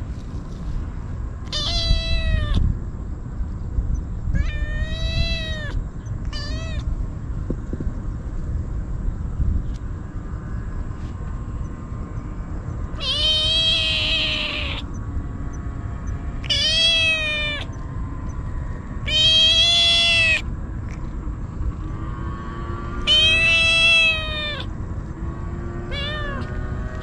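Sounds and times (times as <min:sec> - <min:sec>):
steady low rumble: 0:00.0 - 0:27.0
kitten meowing: 0:01.4 - 0:02.7, 0:04.3 - 0:06.9, 0:12.9 - 0:15.0, 0:16.4 - 0:17.8, 0:19.0 - 0:20.5, 0:23.0 - 0:24.7, 0:25.9 - 0:26.6.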